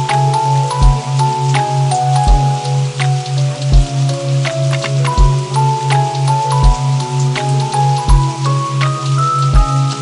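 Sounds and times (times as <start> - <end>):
ambient keyboard music: 0.0 - 10.0
rain patter: 0.0 - 10.0.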